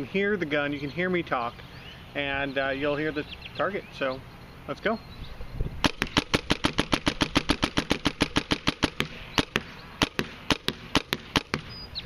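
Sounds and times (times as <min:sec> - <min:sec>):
paintball marker firing: 0:05.8 - 0:11.8.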